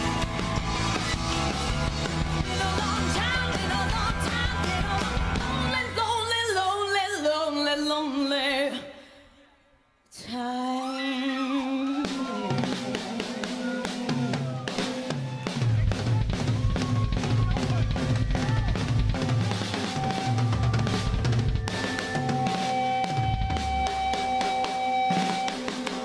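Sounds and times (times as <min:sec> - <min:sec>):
live rock band: 0:00.0 - 0:07.9, 0:11.4 - 0:26.0
woman singing: 0:02.4 - 0:09.0, 0:10.1 - 0:14.6.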